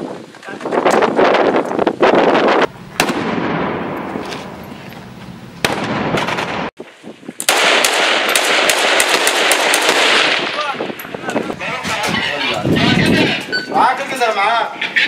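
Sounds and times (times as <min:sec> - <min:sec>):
gunshots echoing: 0:02.9 - 0:04.6, 0:05.6 - 0:06.7, 0:07.4 - 0:11.0
rapid gunfire: 0:07.5 - 0:10.7.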